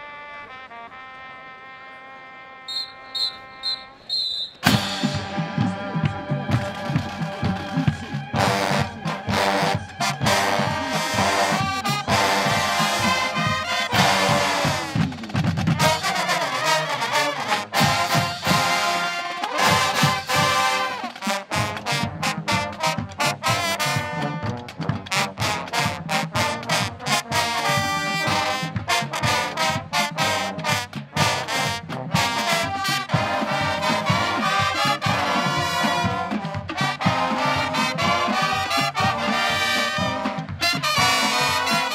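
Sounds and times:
brass section playing: 0.0s - 41.9s
drumline beat: 2.7s - 41.9s.

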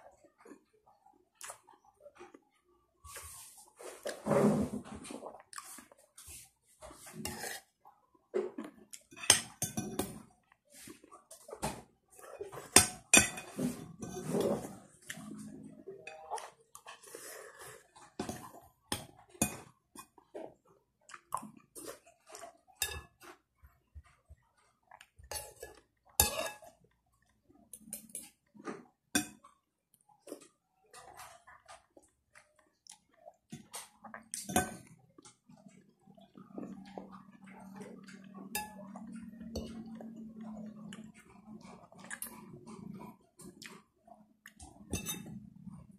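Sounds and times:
cutlery scraping a plate: 7.0s - 7.7s, 9.0s - 10.2s, 12.2s - 15.4s, 25.3s - 26.8s, 37.2s - 40.6s, 44.8s - 45.4s
cutlery clinking on a plate: 9.1s - 10.2s, 44.8s - 45.4s.

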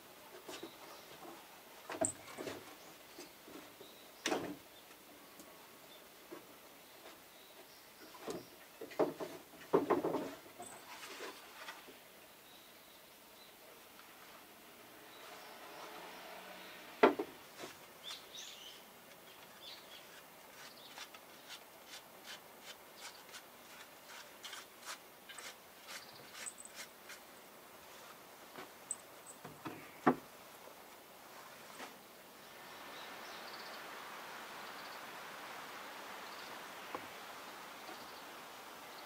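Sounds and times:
sharp wooden knocks: 8.8s - 10.4s.

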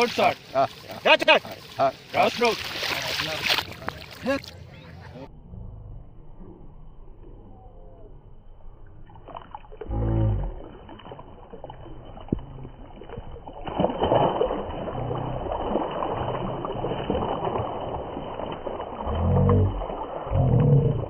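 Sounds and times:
fish splashing in water: 0.0s - 4.5s, 9.0s - 21.0s
brief low-pitched sound: 4.4s - 10.8s.

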